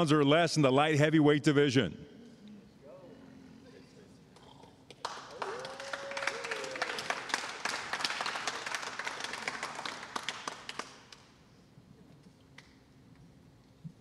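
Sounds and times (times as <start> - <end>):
crowd clapping and cheering: 4.9 - 11.3.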